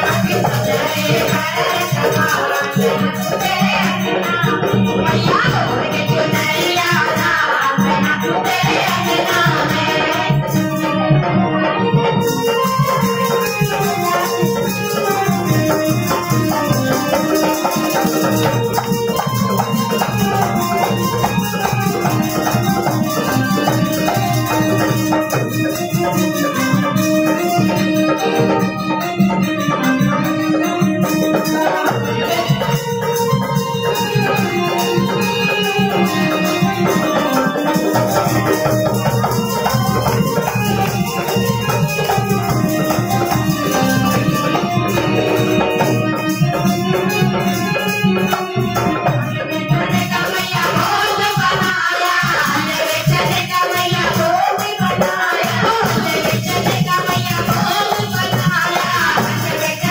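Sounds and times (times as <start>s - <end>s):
dholak drum: 0.0s - 59.9s
jingling hand percussion: 0.0s - 59.9s
held stepping melody: 10.6s - 50.2s.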